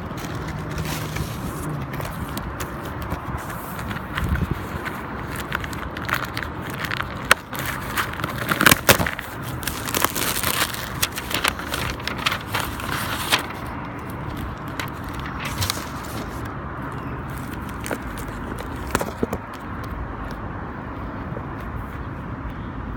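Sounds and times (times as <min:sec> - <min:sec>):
paper packaging rustling: 0:00.0 - 0:19.6
small clicks and bumps: 0:17.3 - 0:20.4.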